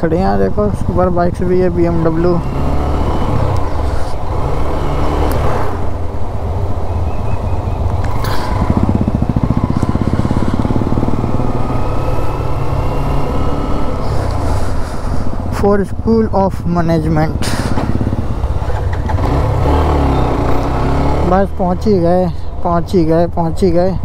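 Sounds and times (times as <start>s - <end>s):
motorcycle engine running: 7.9s - 15.6s, 17.2s - 21.6s.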